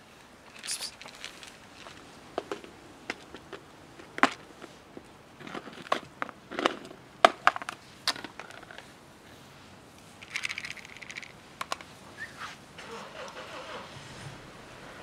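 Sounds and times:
dry cat food rustling: 0.4s - 12.0s.

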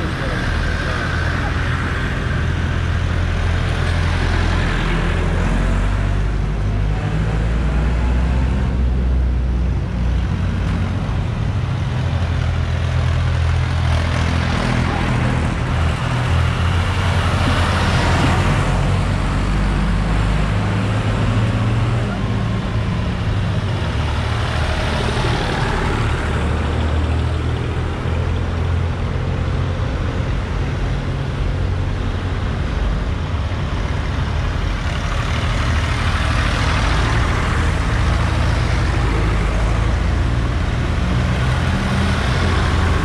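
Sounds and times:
tractor engines driving past: 0.0s - 43.0s.

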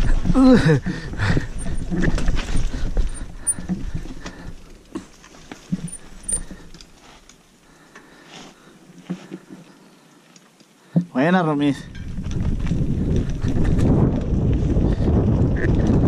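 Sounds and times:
bike tyres rumbling on dirt trail: 0.0s - 10.0s, 11.7s - 16.0s
clicks and knocks from bike: 0.8s - 8.1s.

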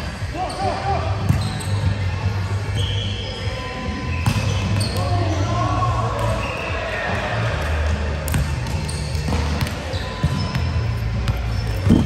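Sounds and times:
shoes squeaking on court: 0.3s - 5.6s, 8.3s - 12.0s.

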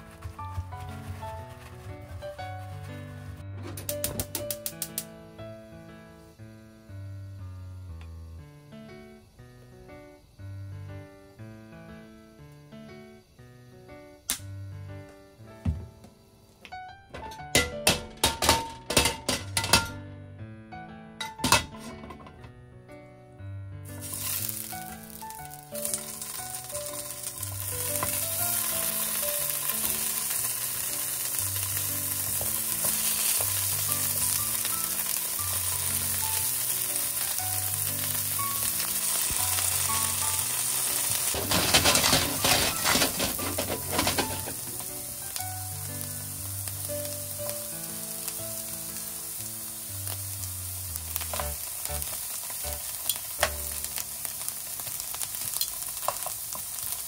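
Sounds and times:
food sizzling in oil: 0.0s - 3.3s, 23.9s - 57.0s
pan clatter: 17.2s - 20.0s, 21.2s - 22.5s, 39.1s - 45.4s.

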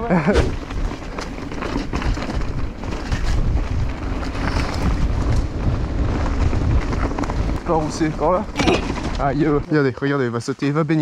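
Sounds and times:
bike rattling over bumps: 0.0s - 9.7s
bike tyres rumbling on dirt: 0.0s - 9.7s
wind buffeting microphone: 0.0s - 9.7s.

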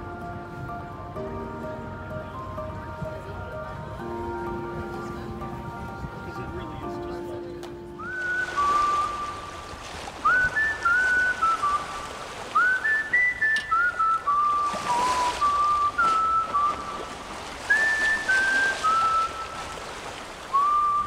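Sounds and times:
person whistling a tune: 8.0s - 12.0s, 12.6s - 19.8s, 20.5s - 21.0s.

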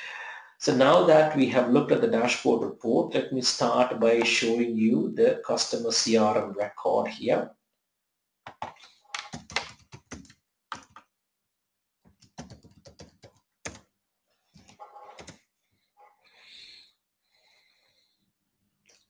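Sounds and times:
computer keyboard typing: 8.5s - 11.0s, 12.1s - 13.9s, 14.6s - 15.4s.

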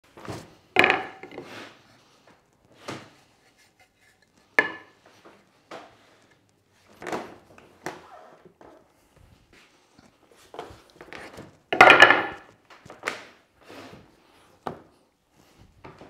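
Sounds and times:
wooden vise knocking: 0.8s - 1.4s, 4.6s - 4.9s.

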